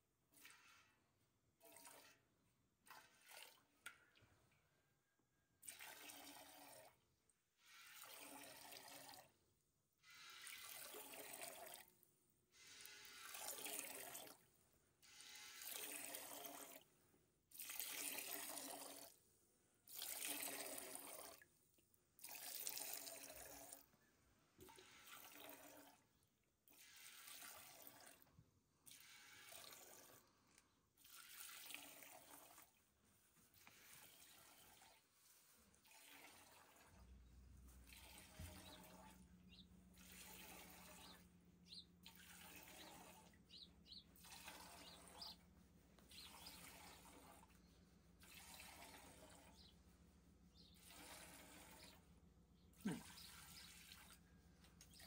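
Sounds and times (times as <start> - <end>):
milk squirting into pail: 1.6 - 4.2, 5.6 - 7.0, 7.6 - 9.3, 10.1 - 12.0, 12.6 - 16.9, 17.5 - 19.2, 19.8 - 21.5, 22.2 - 23.9, 24.6 - 26.1, 26.7 - 32.8, 33.5 - 43.5, 44.2 - 49.7, 50.6 - 55.0.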